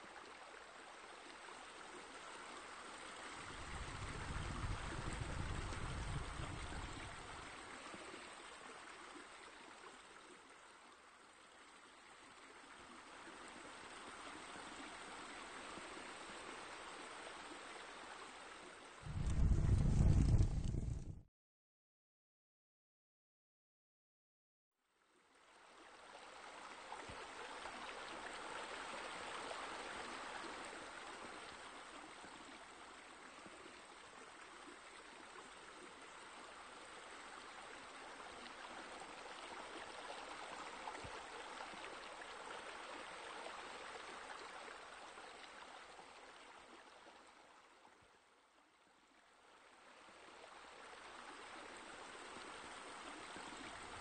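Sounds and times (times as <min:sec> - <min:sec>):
running water: 0:00.0 - 0:21.2.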